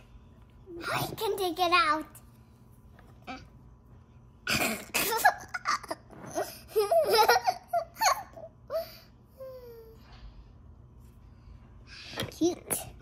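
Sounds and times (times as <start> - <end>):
child laughing: 4.6 - 8.8.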